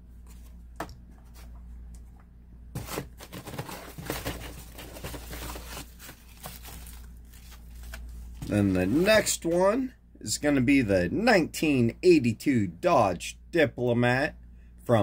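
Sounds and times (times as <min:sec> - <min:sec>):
packing paper crinkling: 0:02.8 - 0:09.5.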